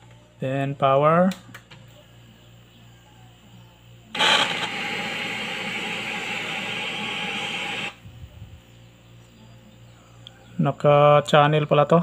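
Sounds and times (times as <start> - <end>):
tv static hiss: 2.0 - 8.8.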